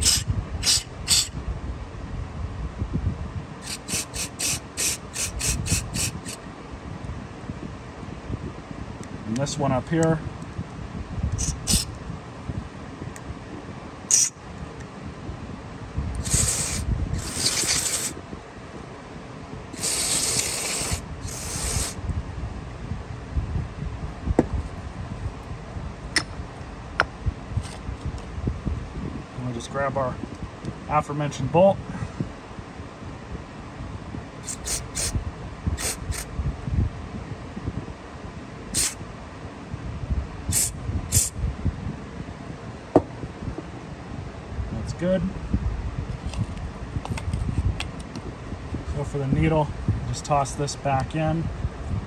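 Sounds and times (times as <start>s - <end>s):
aerosol spray hissing: 16.2s - 18.2s, 19.8s - 22.0s, 38.8s - 39.0s, 40.5s - 41.3s.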